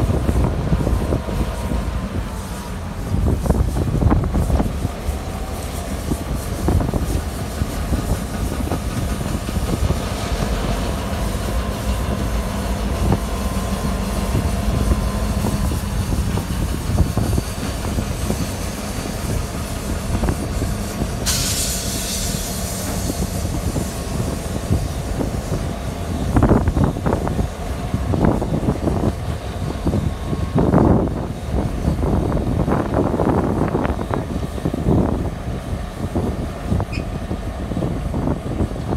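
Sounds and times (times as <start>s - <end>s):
diesel locomotive engine drone: 0.0s - 38.9s
brief hiss: 20.5s - 24.9s.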